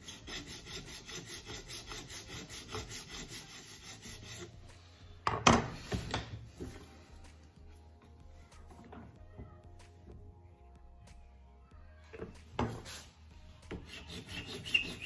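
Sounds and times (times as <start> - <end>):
file rasping on acrylic: 0.0 - 4.8, 13.7 - 15.0
file knocking on wooden bench: 12.6 - 12.9.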